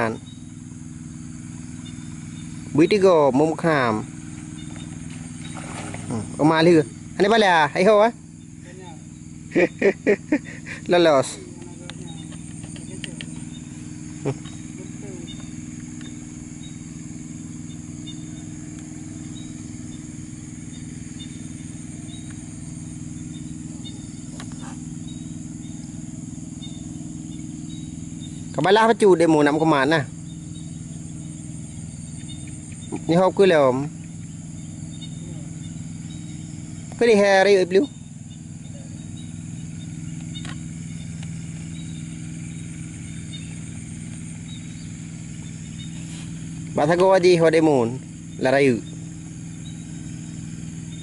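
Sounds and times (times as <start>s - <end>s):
high insect drone: 0.0s - 51.0s
low mechanical hum: 0.0s - 51.0s
sharp click: 11.6s - 13.5s.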